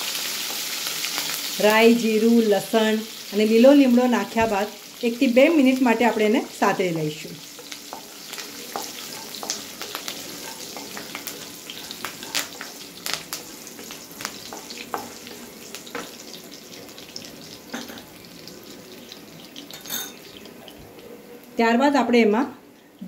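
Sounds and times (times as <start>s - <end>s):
spices sizzling in hot oil: 0.0s - 21.6s
wooden spatula stirring: 7.4s - 16.8s.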